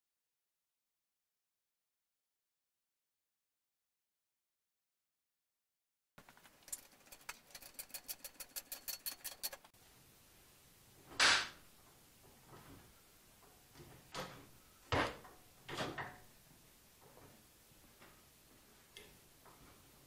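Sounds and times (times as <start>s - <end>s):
knocks and scrapes: 6.2s - 9.8s.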